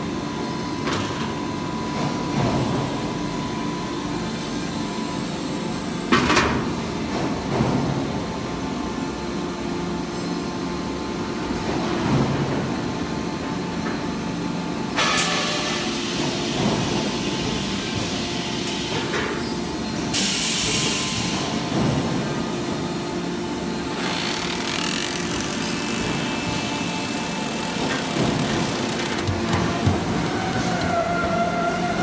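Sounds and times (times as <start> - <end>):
hydraulic pump humming: 23.4 - 32.0.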